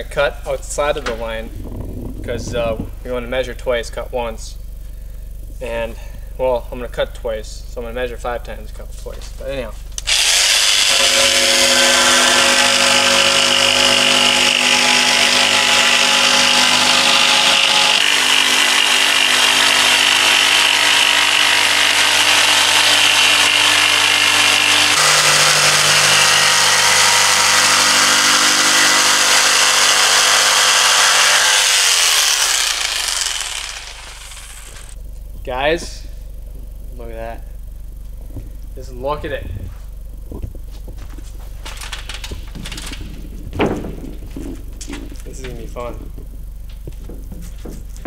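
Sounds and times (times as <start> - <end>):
jigsaw cutting board: 10.0 - 35.0.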